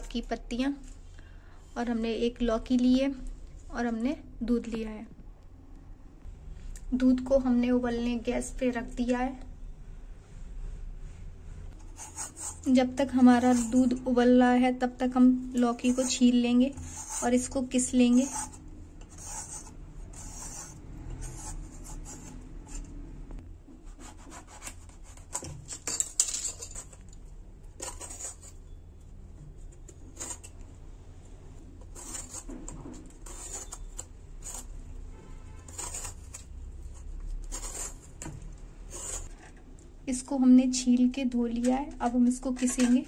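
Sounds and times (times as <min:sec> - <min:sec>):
peeler scraping gourd skin: 0:11.8 - 0:14.0, 0:15.6 - 0:23.0, 0:23.9 - 0:27.1, 0:27.7 - 0:28.7, 0:29.6 - 0:30.7, 0:31.8 - 0:34.9, 0:35.7 - 0:39.6.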